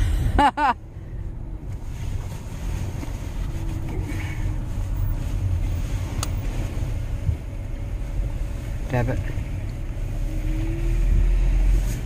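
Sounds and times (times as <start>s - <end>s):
van engine low rumble: 0.0s - 12.0s.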